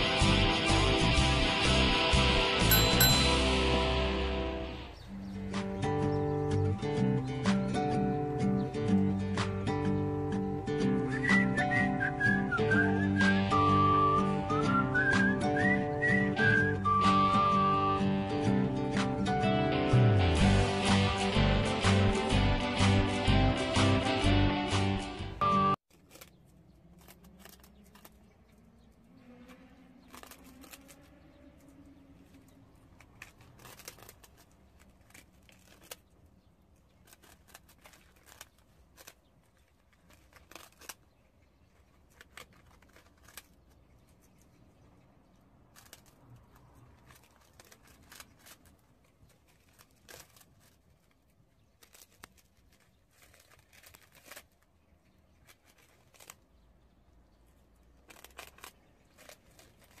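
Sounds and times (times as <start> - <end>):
rice cakes crunching: 25.8 - 60.0.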